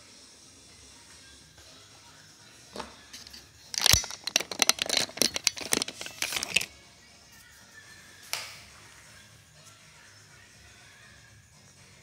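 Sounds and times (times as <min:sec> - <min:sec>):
crinkling and rustling: 0:03.2 - 0:06.7.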